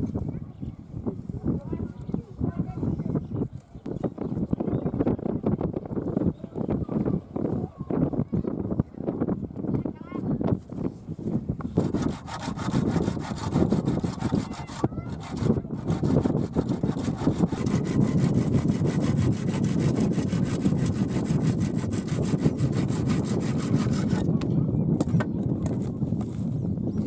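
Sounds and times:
handsaw cutting bamboo: 11.6s - 24.3s.

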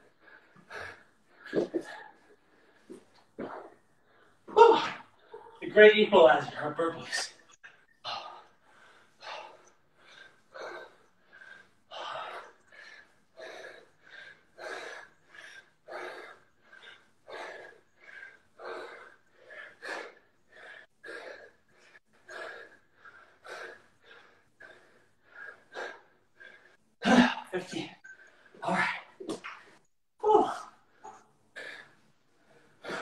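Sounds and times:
man breathing hard: 7.8s - 26.9s.

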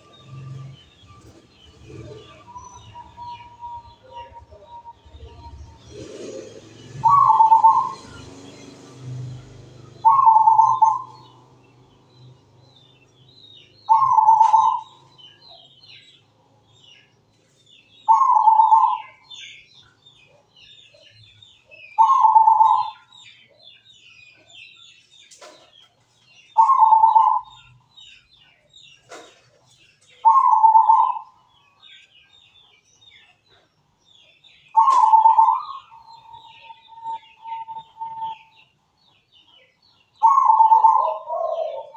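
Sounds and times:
dove cooing: 1.7s - 8.2s, 10.0s - 11.4s, 13.8s - 15.1s, 18.1s - 19.3s, 21.8s - 23.1s, 26.6s - 27.6s, 30.2s - 31.4s, 34.7s - 38.5s, 40.2s - 41.9s.

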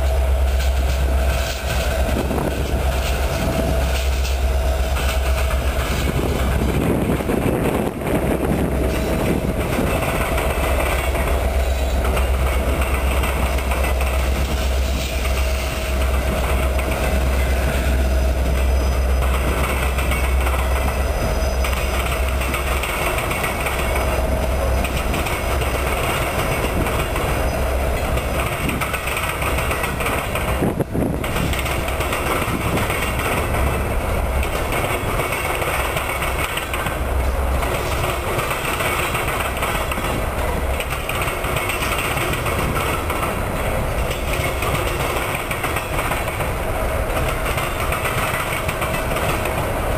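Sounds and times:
diesel locomotive engine rumble: 0.0s - 49.9s
train wheels rolling on rails: 0.0s - 49.9s.

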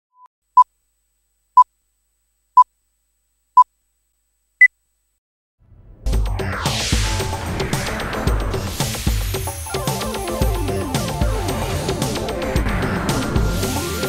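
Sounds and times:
intro music: 5.6s - 14.0s.

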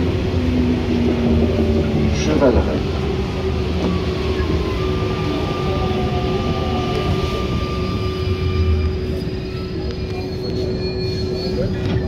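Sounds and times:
train tyres rumbling: 0.0s - 12.0s.

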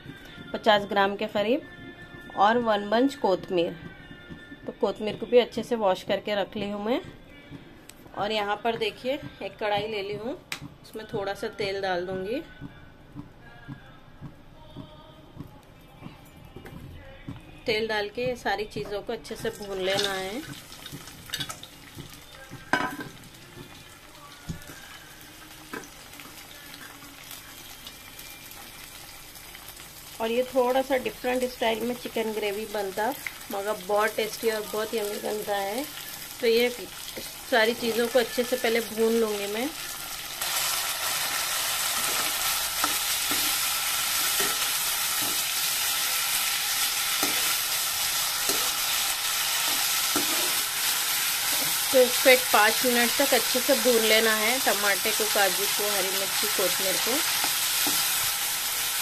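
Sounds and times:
vegetables sizzling in oil: 18.0s - 59.0s
spoon scraping and knocking pan: 18.8s - 23.7s, 41.9s - 51.9s.

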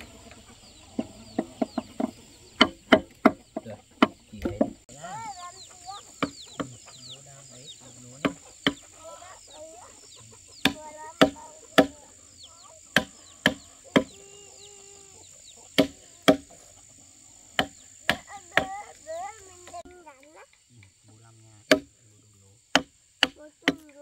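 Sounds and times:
hammer striking chisel into wood: 21.7s - 21.9s.

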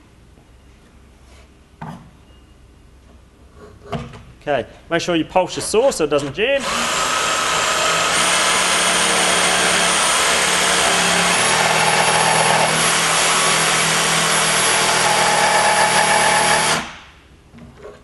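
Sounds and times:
jigsaw sawing through plywood: 6.6s - 16.9s.

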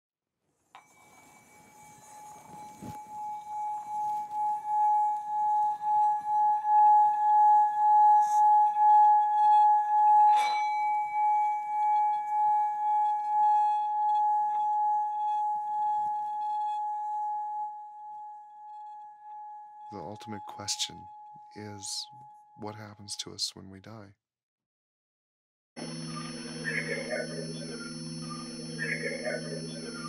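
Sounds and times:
singing bowls ringing: 0.7s - 22.6s, 25.8s - 30.0s
singing bowl struck: 0.8s - 17.8s.

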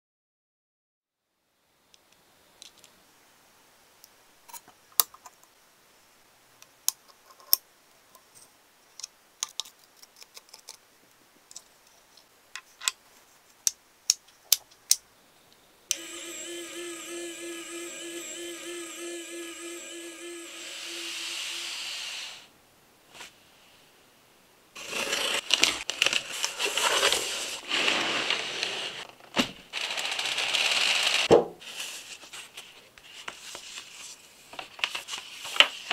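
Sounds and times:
small motor humming and whirring: 15.9s - 22.1s.

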